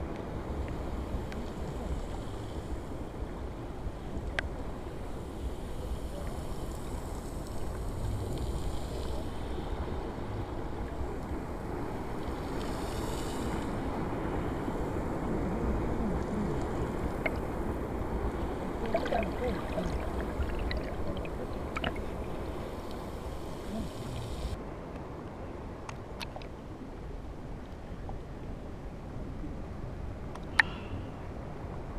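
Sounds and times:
seawater sloshing and churning: 0:13.4 - 0:24.6.

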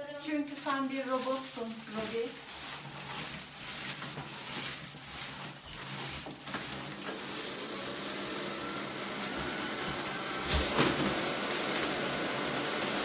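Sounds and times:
rustling and knocking: 0:00.0 - 0:07.2
vacuum cleaner running: 0:00.0 - 0:13.0.

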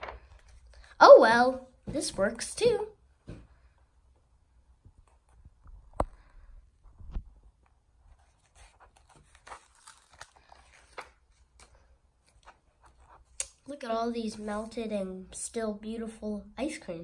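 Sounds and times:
book pages turning: 0:00.0 - 0:00.9, 0:07.0 - 0:14.8.

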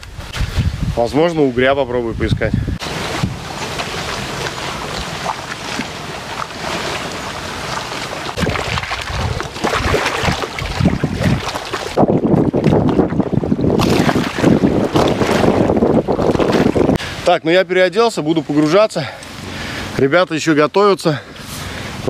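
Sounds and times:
wind buffeting microphone: 0:00.0 - 0:17.2
choppy lake waves: 0:00.4 - 0:20.0.

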